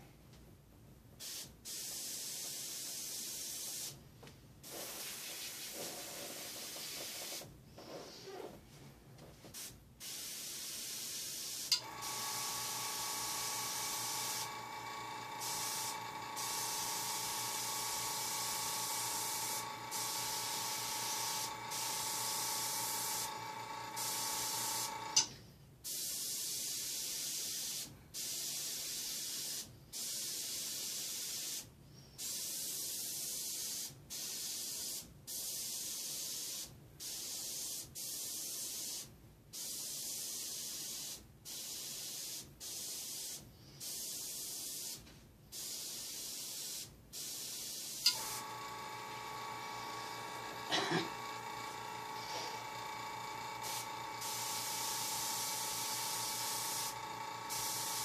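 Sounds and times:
airbrush spraying hiss: 0:01.2 - 0:04.0, 0:04.6 - 0:07.5, 0:09.4 - 0:25.3, 0:25.9 - 0:58.0
air compressor humming: 0:11.6 - 0:25.3, 0:48.0 - 0:58.0.

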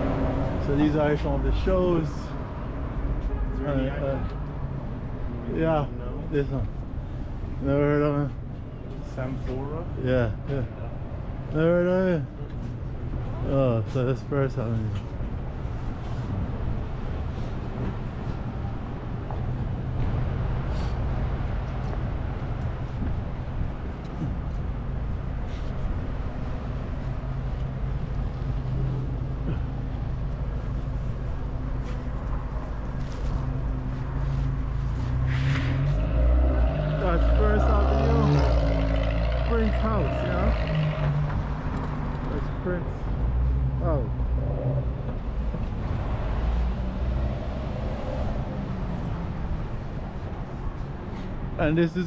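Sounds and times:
traffic rumble and hum: 0:00.0 - 0:52.0
car engine driving past: 0:33.0 - 0:42.6.

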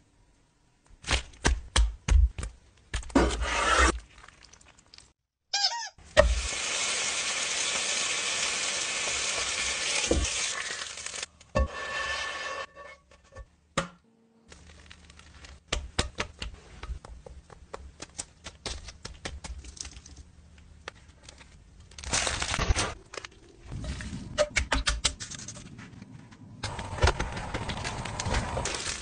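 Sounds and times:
egg sizzling in a hot pan: 0:06.2 - 0:11.3
crisp clicks taps and rustles: 0:14.5 - 0:21.6.

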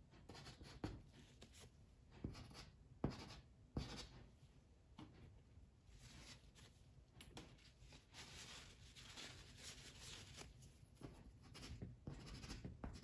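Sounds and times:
pastel scratching on paper: 0:11.0 - 0:13.0.

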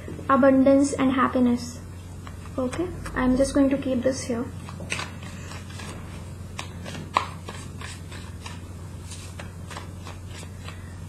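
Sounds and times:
cards being shuffled: 0:04.6 - 0:11.0
card snap: 0:06.6 - 0:08.6.

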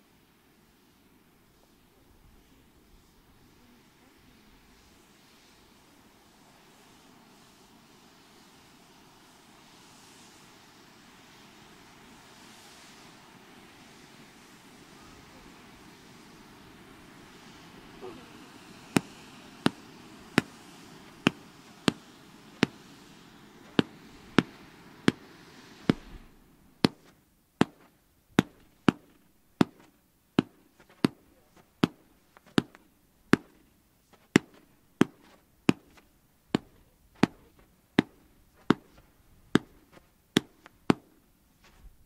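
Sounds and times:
fireworks fountains hissing: 0:00.0 - 0:42.0
fireworks bangs: 0:09.9 - 0:41.2.

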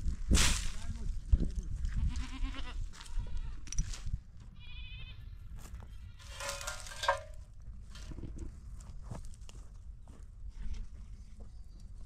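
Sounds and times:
livestock bleating: 0:02.0 - 0:03.6, 0:04.6 - 0:06.7.

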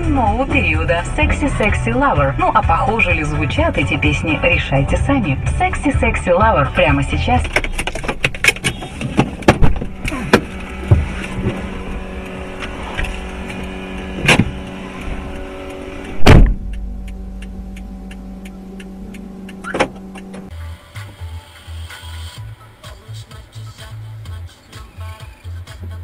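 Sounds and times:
steady low hum: 0:00.0 - 0:21.4
wind buffeting a car: 0:06.4 - 0:20.5.

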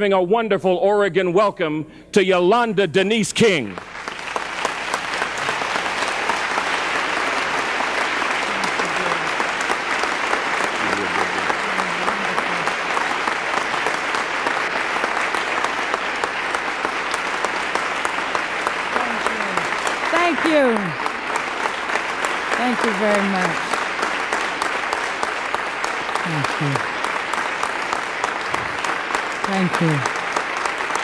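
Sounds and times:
large audience applauding: 0:03.4 - 0:31.0
faint voices: 0:10.8 - 0:12.8.

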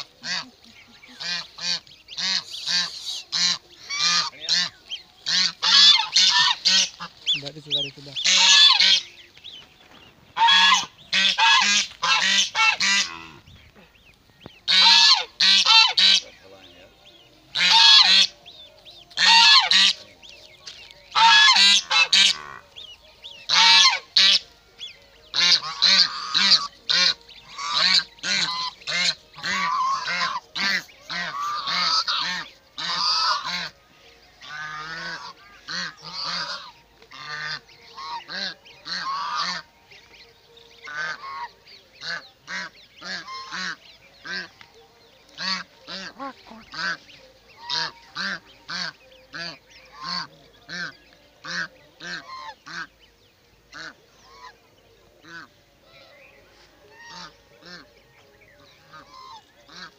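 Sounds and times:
geese honking: 0:00.0 - 0:59.9.

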